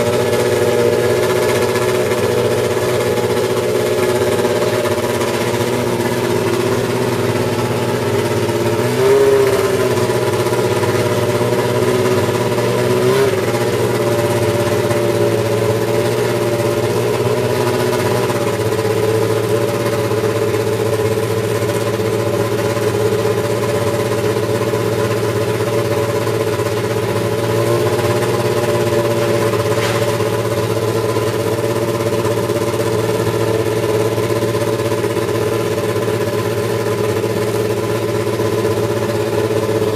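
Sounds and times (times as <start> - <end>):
race car engine idling: 0.0 - 39.9.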